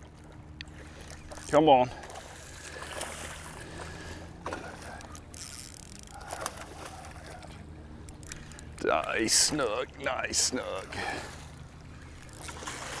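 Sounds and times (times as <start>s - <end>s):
low background hum: 0.0s - 13.0s
fish splashing at water surface: 6.1s - 7.5s, 12.2s - 13.0s.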